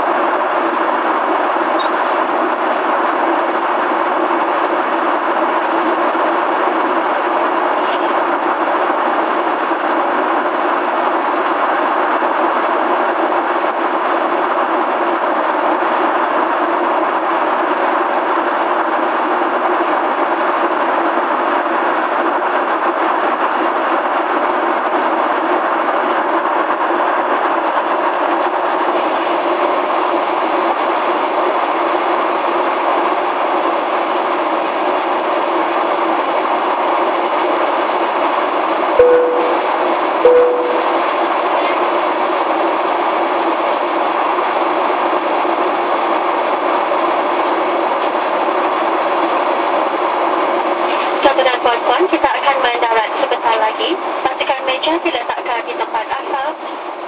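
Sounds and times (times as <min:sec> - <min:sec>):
airplane cabin airflow and engine noise: 0:00.0 - 0:38.4, 0:39.0 - 0:57.0
short cabin tones: 0:39.0 - 0:41.1.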